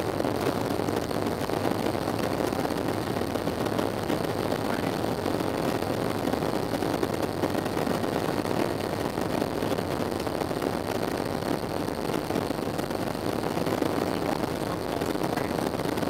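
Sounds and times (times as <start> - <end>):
airplane cabin engine rumble: 0.0 - 16.0.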